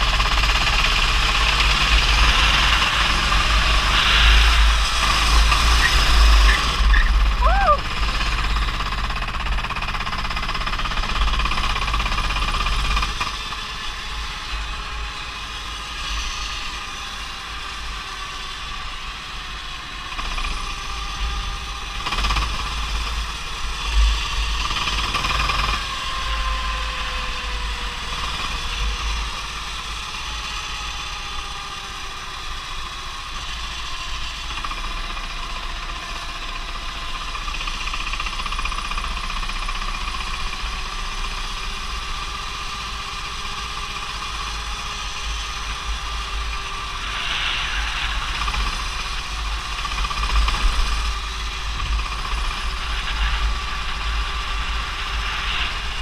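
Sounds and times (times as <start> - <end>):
go-kart engine running: 0.0 - 56.0
deep rumble of wind: 42.8 - 56.0.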